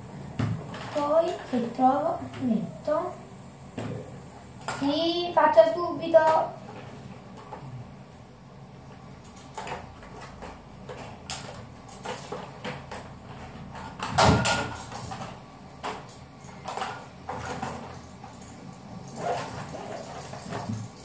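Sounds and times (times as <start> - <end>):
small objects clicking and knocking: 9.2 - 21.0.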